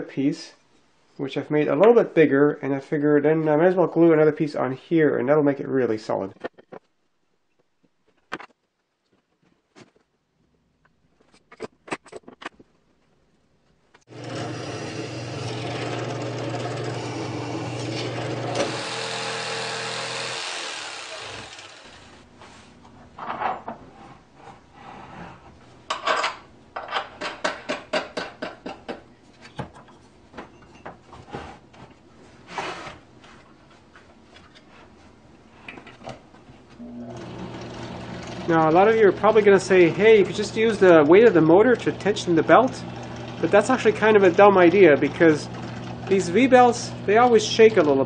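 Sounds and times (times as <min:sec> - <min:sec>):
jigsaw cutting wood: 0:14.1 - 0:22.2, 0:37.1 - 0:38.5.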